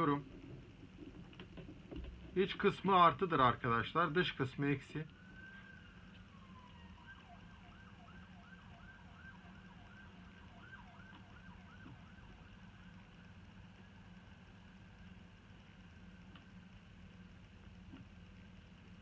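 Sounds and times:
low steady hum: 0:00.0 - 0:19.0
faint siren wailing and yelping: 0:05.0 - 0:14.2.

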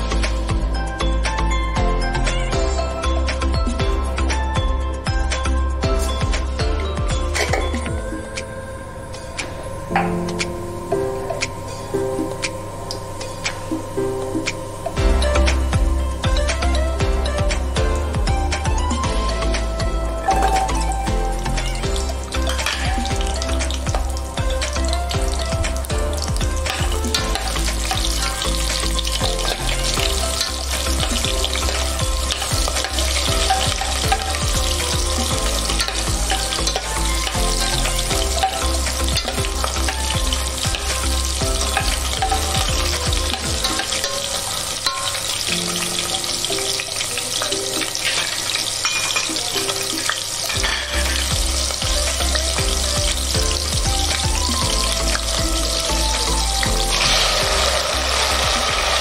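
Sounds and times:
background music with bass line: 0:00.0 - 0:08.3, 0:13.2 - 0:44.6, 0:50.1 - 0:59.0
shallots sizzling in hot oil: 0:05.9 - 0:06.6, 0:11.7 - 0:59.0
metal spoon stirring in pot: 0:26.7 - 0:51.3.

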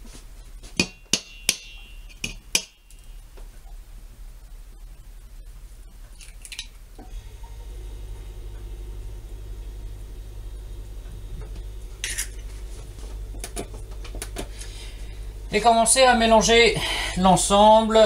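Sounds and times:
steady low hum: 0:00.0 - 0:18.0
egg cracking on metal bowl: 0:00.8 - 0:03.1, 0:06.1 - 0:06.8.

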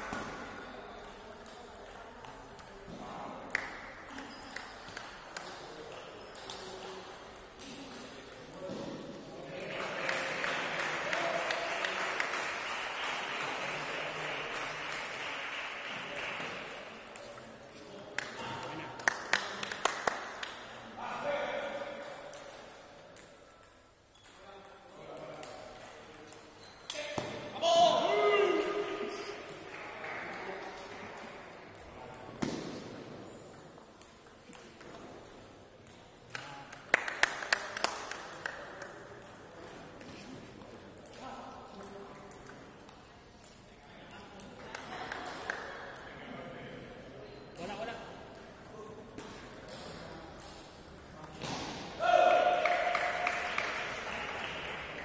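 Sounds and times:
crowd clapping: 0:09.6 - 0:17.0, 0:18.2 - 0:20.6, 0:29.6 - 0:31.1, 0:36.7 - 0:38.7, 0:52.5 - 0:55.0.

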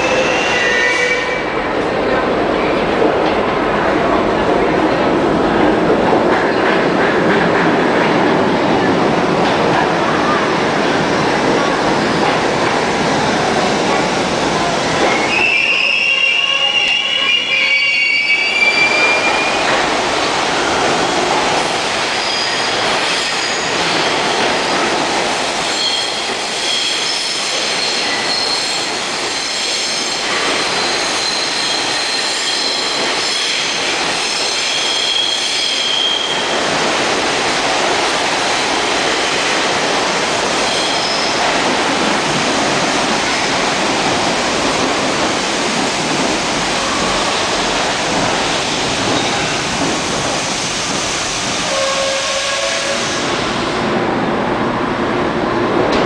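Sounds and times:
train wheels squealing on rails: 0:00.0 - 0:01.6, 0:15.0 - 0:19.8, 0:22.0 - 0:25.0, 0:25.6 - 0:36.6, 0:40.6 - 0:41.5
train cars rumbling: 0:00.0 - 0:56.0.

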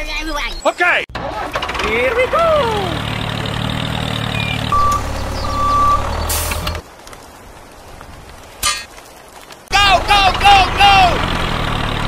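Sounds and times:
vehicle engine running: 0:01.2 - 0:06.8, 0:09.9 - 0:12.0
short high beeps: 0:04.7 - 0:06.0.

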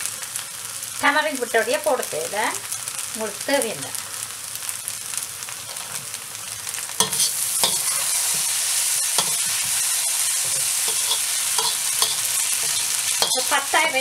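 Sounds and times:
noodles sizzling in a wok: 0:00.0 - 0:14.0
metal tongs clacking on a wok: 0:07.0 - 0:08.5, 0:09.2 - 0:09.7, 0:10.4 - 0:14.0.

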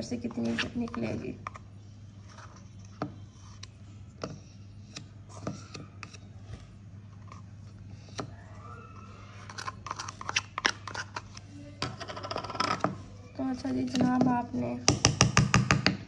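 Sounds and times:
steady low hum: 0:00.0 - 0:16.0
plastic spatula scraping jar: 0:09.3 - 0:12.8
spatula knocking plastic bowl: 0:13.9 - 0:16.0.

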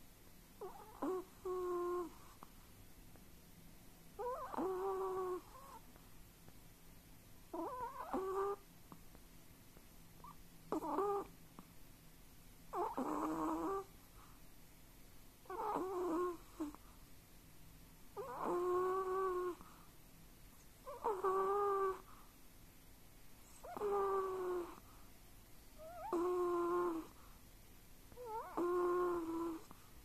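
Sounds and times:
dog whistling snore: 0:04.2 - 0:05.3, 0:25.8 - 0:27.1.

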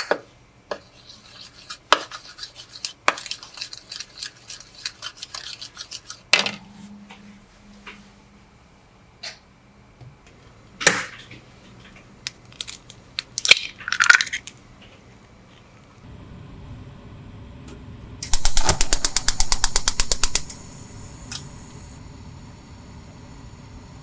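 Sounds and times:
eggs beaten in a bowl: 0:00.7 - 0:06.3
steady hiss: 0:18.2 - 0:24.0.

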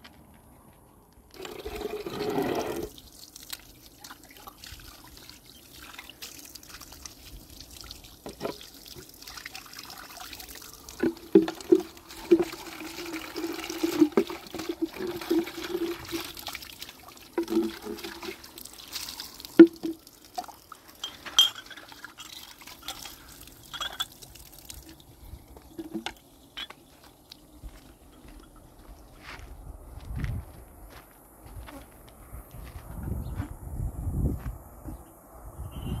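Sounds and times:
water running into plastic jug: 0:01.3 - 0:25.1
jug knocking: 0:11.0 - 0:12.6, 0:17.4 - 0:18.3, 0:19.6 - 0:20.0, 0:25.8 - 0:26.7.

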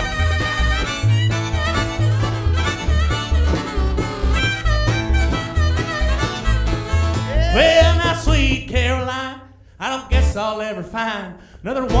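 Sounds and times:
harmonica bent notes: 0:00.0 - 0:08.3
strummed acoustic guitar: 0:00.0 - 0:09.1
bass line: 0:00.0 - 0:10.6.

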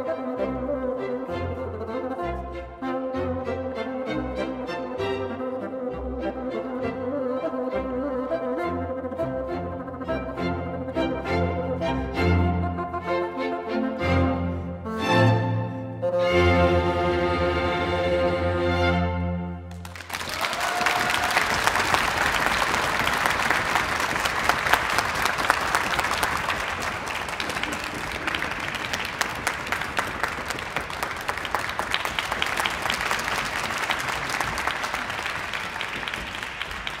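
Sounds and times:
audience applauding: 0:19.7 - 0:37.0.

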